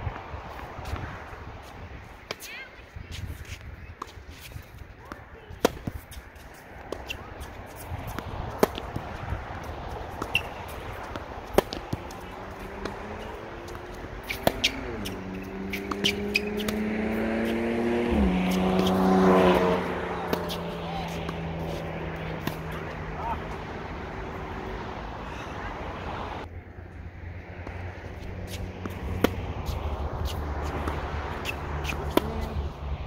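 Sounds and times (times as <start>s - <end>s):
tennis balls struck with rackets: 2.2s - 26.0s, 28.5s - 32.8s
vehicle engine passing: 5.6s - 33.0s.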